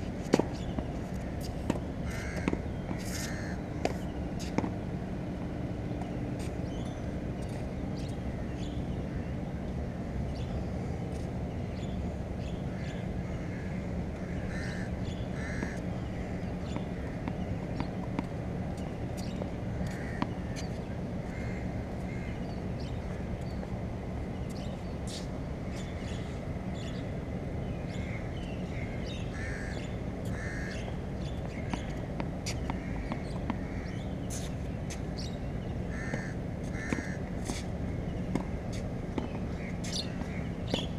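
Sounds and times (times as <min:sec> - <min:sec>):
bird calls: 0:39.2 - 0:40.9.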